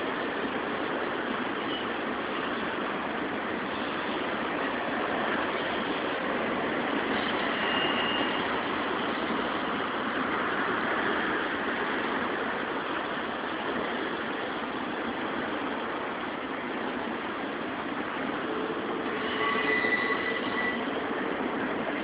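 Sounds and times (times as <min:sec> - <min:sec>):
freight train wheels on rails: 0:00.0 - 0:22.0
faint high squeal: 0:07.4 - 0:08.5, 0:19.1 - 0:20.9.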